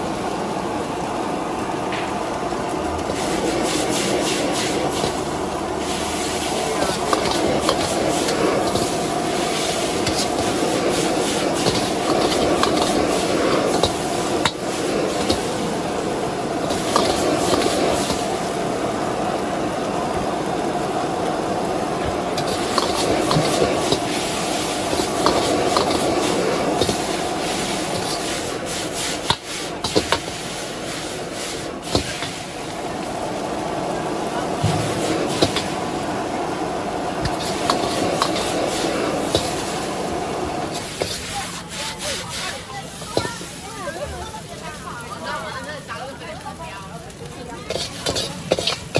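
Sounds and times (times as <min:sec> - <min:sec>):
food sizzling in a wok: 0:00.0 - 0:48.9
metal spatula scraping a wok: 0:37.2 - 0:39.7, 0:47.7 - 0:48.9.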